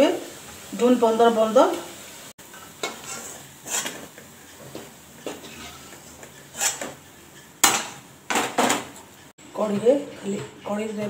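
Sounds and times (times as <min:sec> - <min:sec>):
steel spatula scraping and clinking: 0:02.5 - 0:08.0.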